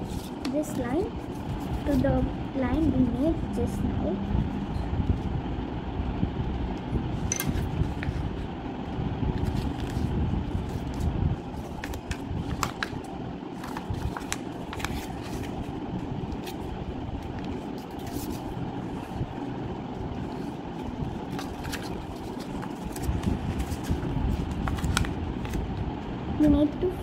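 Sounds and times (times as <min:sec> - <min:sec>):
paper being folded by hand: 0:00.0 - 0:03.8, 0:07.5 - 0:08.5, 0:09.3 - 0:19.4, 0:20.2 - 0:25.8
low background rumble: 0:00.0 - 0:27.0.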